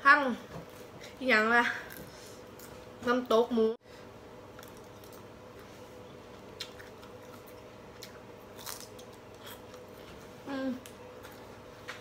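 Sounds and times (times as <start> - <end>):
person chewing food: 4.5 - 10.4.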